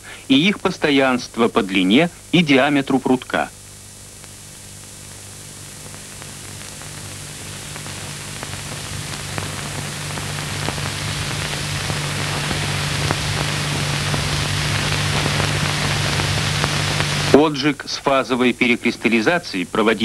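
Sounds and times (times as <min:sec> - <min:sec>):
hiss with crackles: 0:00.0 - 0:20.0
low hum: 0:03.2 - 0:17.6.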